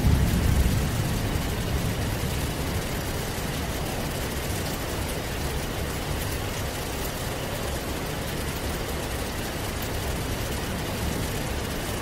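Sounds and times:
low thunder rumble: 0.0 - 3.6
heavy rain pouring: 0.0 - 12.0.

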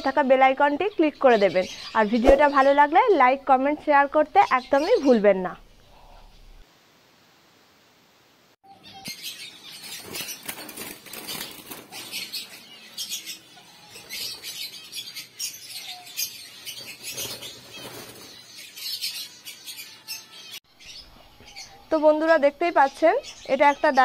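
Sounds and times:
doves flapping wings in cage: 9.8 - 12.5, 16.8 - 18.5.

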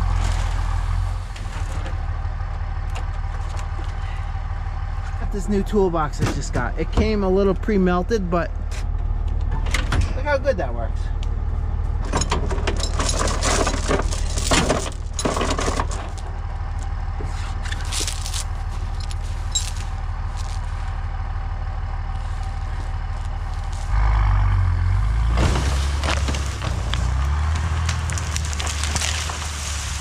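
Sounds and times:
truck engine running: 0.0 - 30.0
metallic clanks and rattles: 12.0 - 20.8.

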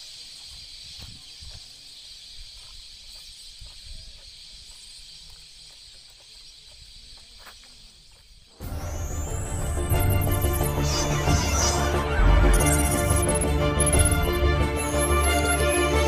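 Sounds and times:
high-pitched woodland drone: 8.6 - 16.0.

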